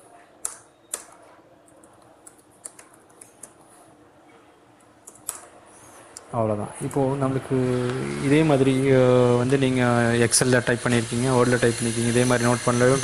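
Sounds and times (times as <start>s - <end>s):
computer keyboard keys tapping: 0.4s - 3.7s.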